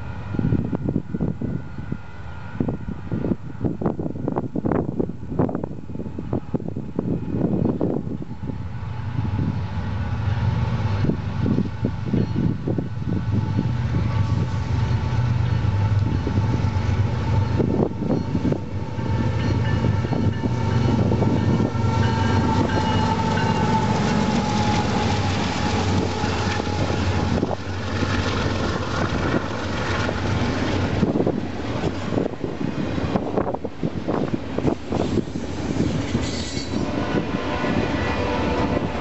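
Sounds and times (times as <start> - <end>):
deep locomotive engine rumble: 0.0 - 39.0
train wheel clatter: 17.4 - 32.3, 34.2 - 37.3.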